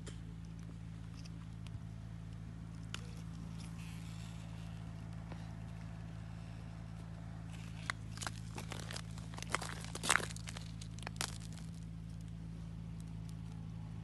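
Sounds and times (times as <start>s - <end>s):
steady low hum: 0.0s - 14.0s
footsteps crunching on ice: 7.6s - 11.8s.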